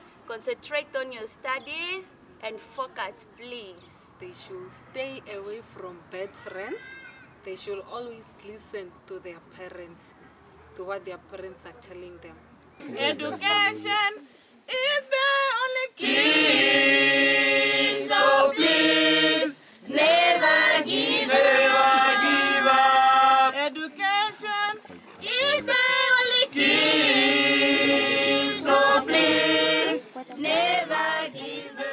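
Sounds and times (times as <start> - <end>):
group of voices singing: 15.9 - 31.9.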